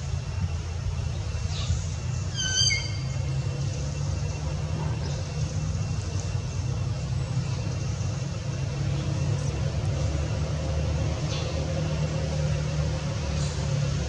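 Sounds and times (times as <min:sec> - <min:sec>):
low engine rumble: 0:00.0 - 0:14.0.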